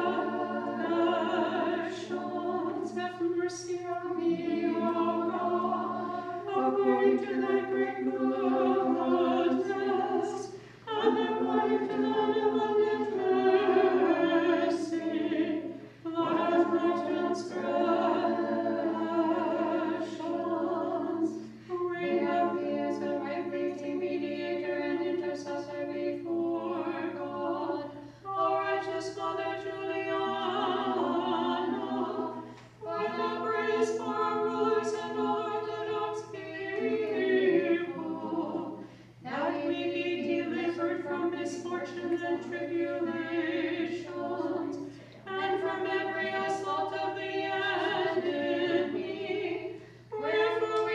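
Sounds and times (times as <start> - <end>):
nuns singing chant: 0.0 - 50.9.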